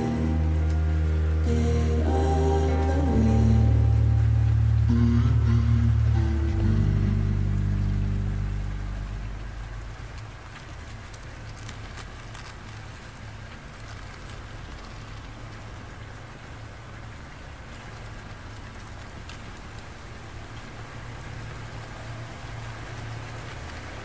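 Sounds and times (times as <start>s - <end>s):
slowed song: 0.0s - 11.4s
rain falling: 0.0s - 24.0s.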